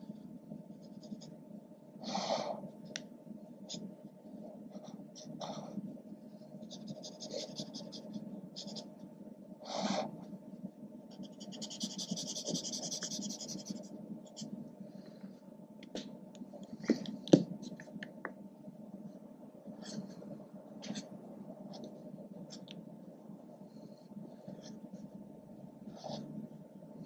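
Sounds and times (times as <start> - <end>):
marker scratching on paper: 6.7 - 8.9, 11.1 - 14.5.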